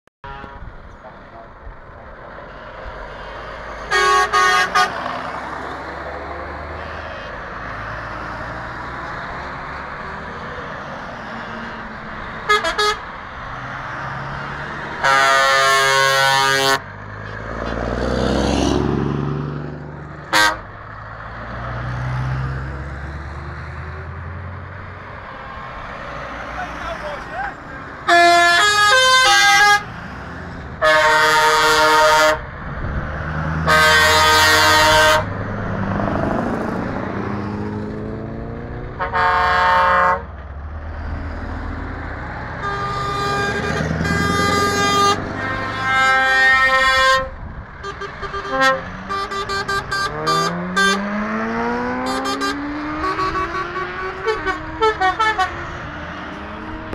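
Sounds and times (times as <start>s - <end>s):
truck diesel engines accelerating: 0.3s - 56.9s
lorry air horns: 3.9s - 5.0s, 12.5s - 13.1s, 15.0s - 16.9s, 20.3s - 20.7s, 28.0s - 29.9s, 30.8s - 32.4s, 33.6s - 35.3s, 39.0s - 40.3s, 42.6s - 51.1s, 52.0s - 55.6s.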